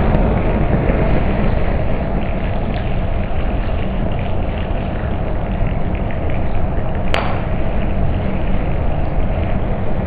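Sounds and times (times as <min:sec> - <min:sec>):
rushing flame: 0:00.0 - 0:10.0
sharp pop: 0:07.1 - 0:07.6.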